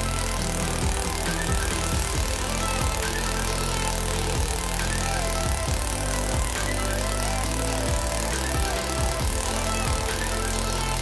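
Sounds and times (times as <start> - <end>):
held bass line: 0.0 - 11.0
music with a beat: 0.0 - 11.0.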